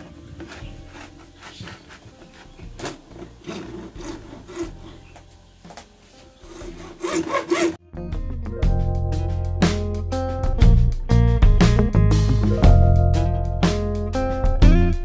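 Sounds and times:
hacksaw cutting plastic: 0:00.0 - 0:05.2, 0:06.4 - 0:07.8.

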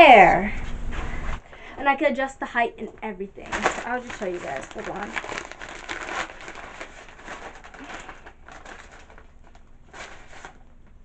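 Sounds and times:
plastic packaging crinkling: 0:03.4 - 0:11.0.

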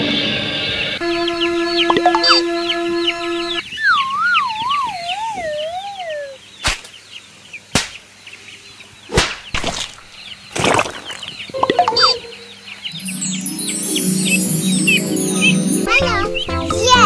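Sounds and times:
wavering whistle sliding downward: 0:01.0 - 0:06.4
ducklings and chicks peeping: 0:01.0 - 0:09.2, 0:10.2 - 0:15.6
sharp whip-crack swishes: 0:06.6 - 0:06.9, 0:07.7 - 0:08.0, 0:09.1 - 0:09.6.

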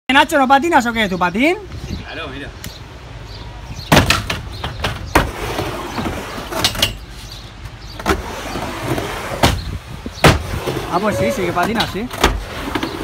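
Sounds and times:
skateboard wheels rolling on wood: 0:04.1 - 0:13.0.

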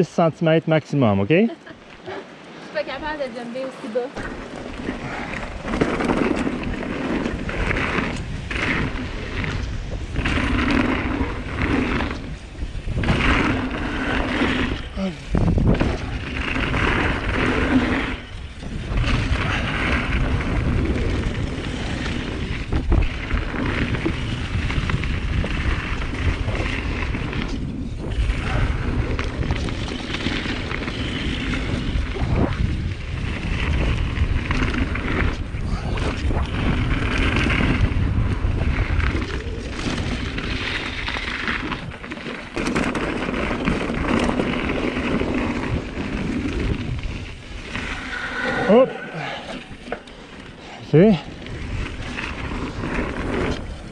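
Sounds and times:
wind buffeting microphone: 0:01.1 - 0:53.9
tyre noise on dirt: 0:02.7 - 0:53.9
bike knocks and rattles: 0:04.2 - 0:14.8, 0:15.4 - 0:47.7.

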